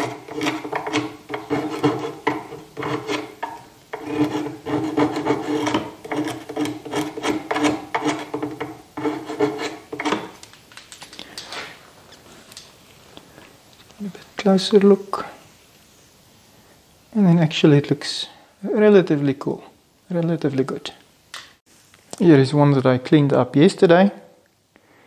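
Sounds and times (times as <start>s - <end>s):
metal blade scraping wood: 0.0s - 10.4s.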